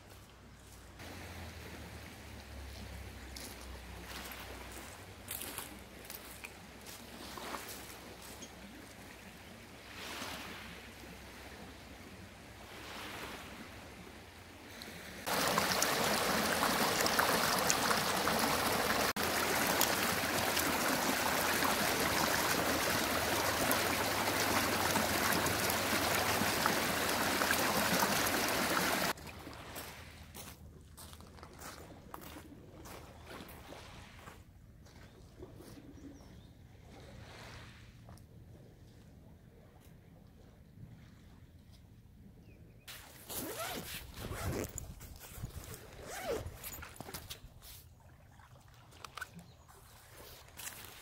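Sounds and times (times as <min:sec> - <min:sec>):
waves lapping on pebbles: 0:01.0 - 0:34.4
water rushing over stones: 0:15.3 - 0:29.2.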